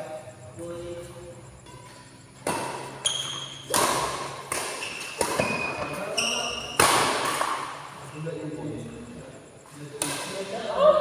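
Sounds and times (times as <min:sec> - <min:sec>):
rackets hitting shuttlecock: 0:01.7 - 0:07.9, 0:10.0 - 0:10.4.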